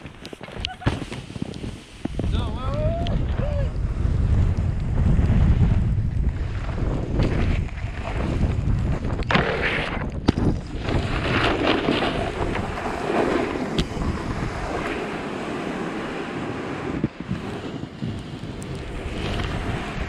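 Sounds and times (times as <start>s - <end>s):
wind buffeting microphone: 0.0s - 20.0s
snowboard hissing over snow: 0.7s - 4.2s, 11.1s - 20.0s.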